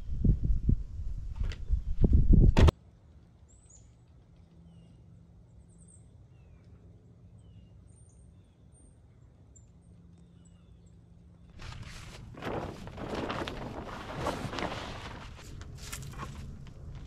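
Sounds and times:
faint birds chirping: 3.3s - 12.0s.

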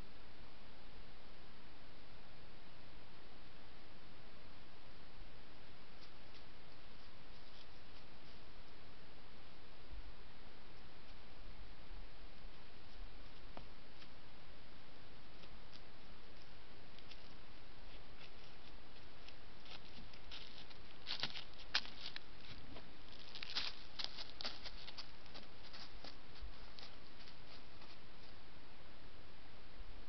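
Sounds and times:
dry leaves rustling and crackling: 16.4s - 28.3s.

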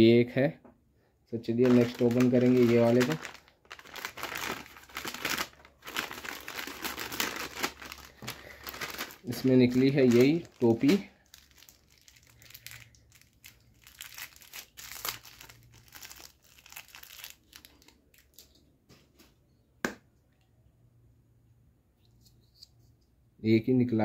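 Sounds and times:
plastic pouch crinkling and tearing: 1.5s - 18.6s.

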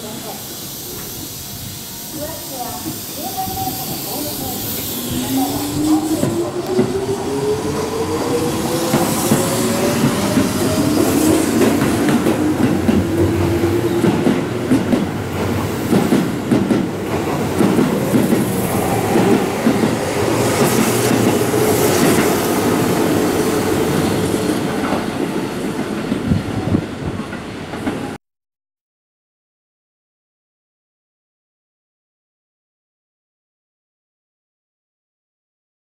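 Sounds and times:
electric train motors whining: 0.0s - 14.6s.

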